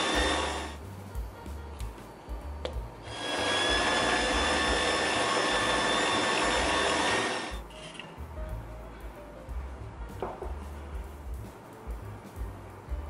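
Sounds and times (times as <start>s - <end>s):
stand mixer motor whining: 0.0s - 0.8s, 3.1s - 7.6s.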